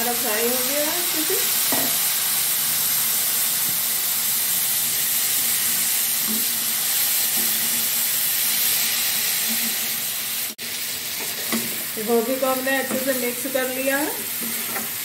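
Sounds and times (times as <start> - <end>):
frying hiss in oil: 0.0 - 15.0
spoon scraping pan: 11.1 - 11.9, 12.6 - 15.0.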